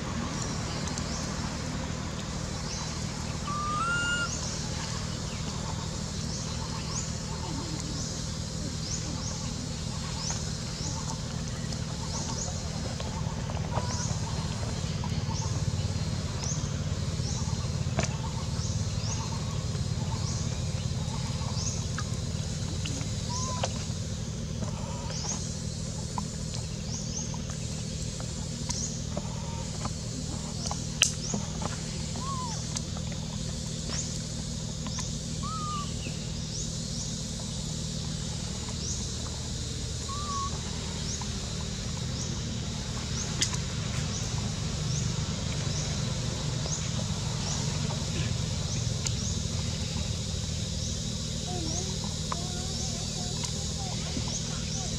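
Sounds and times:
short whistled calls: 3.4 - 4.6, 35.4 - 36.1, 40.1 - 40.6.

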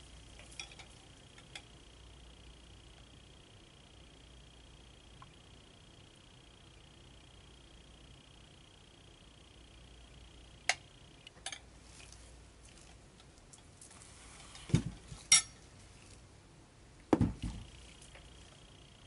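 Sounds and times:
dull thuds on table: 17.1 - 17.6.

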